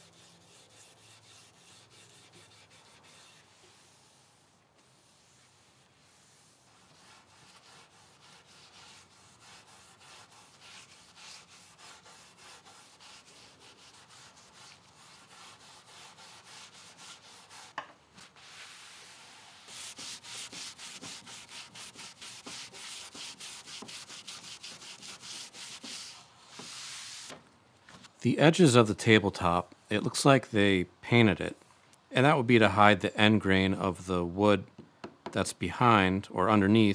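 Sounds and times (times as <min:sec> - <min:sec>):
rag scrubbing on wood: 0:00.0 - 0:27.3.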